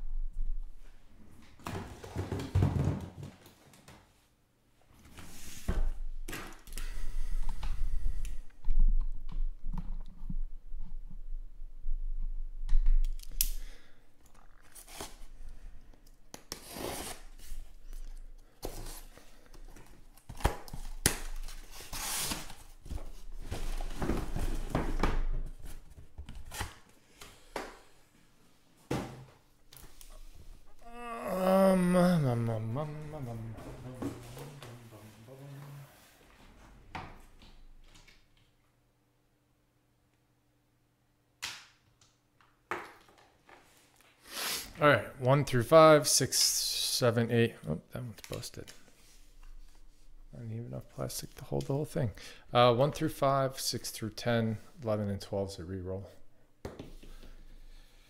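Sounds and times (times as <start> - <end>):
boxes set down knocking: 1.6 - 3.4.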